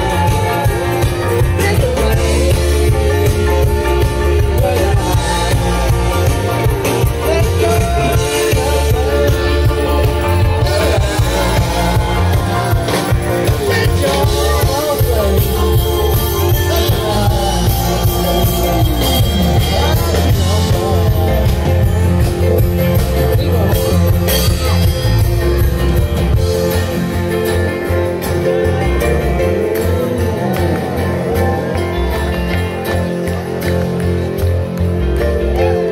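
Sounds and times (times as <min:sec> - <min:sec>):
person singing: 0:00.0 - 0:26.5
live band playing amplified music: 0:00.0 - 0:35.9
steady bass line: 0:00.0 - 0:35.9.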